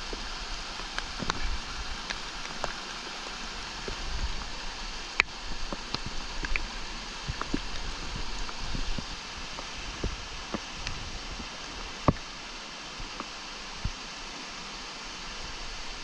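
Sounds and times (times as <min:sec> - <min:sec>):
creek rushing over stones: 0:00.0 - 0:16.0
water drips and splashes: 0:00.0 - 0:16.0.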